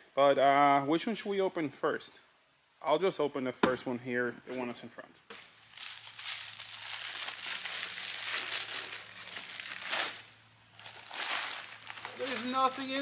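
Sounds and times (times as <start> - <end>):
plastic mailer bag crinkling: 5.4 - 13.0
tissue paper rustling: 5.4 - 13.0.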